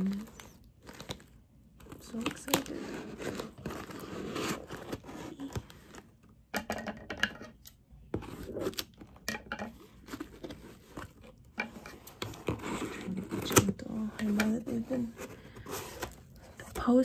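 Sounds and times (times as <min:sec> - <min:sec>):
cardboard and tape tearing: 0:01.9 - 0:06.0.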